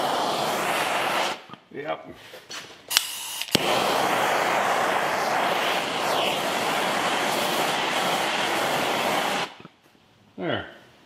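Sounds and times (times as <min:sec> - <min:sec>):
gas torch hissing: 0:00.0 - 0:01.6, 0:02.9 - 0:09.7.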